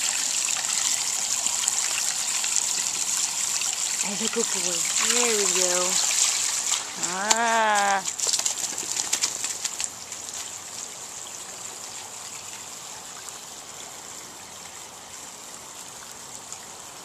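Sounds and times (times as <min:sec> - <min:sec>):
water trickling from garden hose: 0:00.0 - 0:17.0
wet dog shaking off water: 0:04.8 - 0:10.6.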